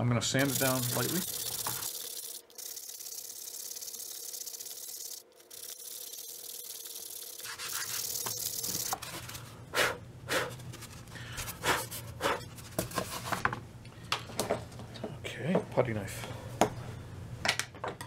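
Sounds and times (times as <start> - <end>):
sandpaper rasping: 0.4 - 2.2, 5.5 - 9.4
sandpaper scraping strokes: 0.4 - 2.2, 5.5 - 9.5.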